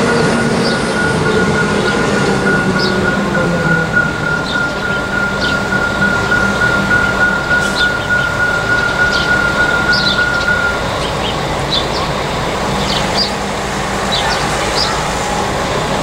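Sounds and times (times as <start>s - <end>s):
electronic warning bell: 0.0s - 11.1s.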